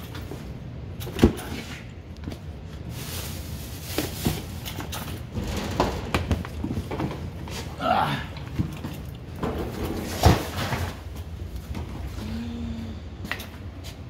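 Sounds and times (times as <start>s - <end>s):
plastic bag rustling: 2.6s - 7.3s
items knocking and clunking: 3.8s - 12.1s.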